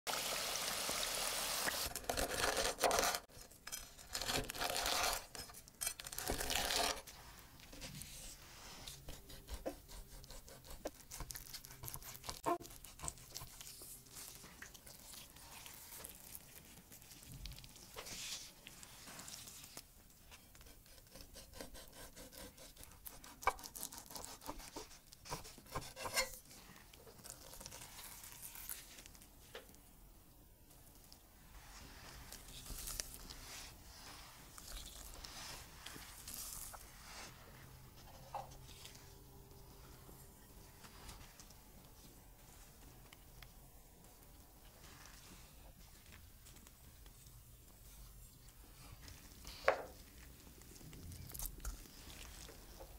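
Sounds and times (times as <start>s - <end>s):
deep-frying sizzle in hot oil: 0.1s - 2.0s.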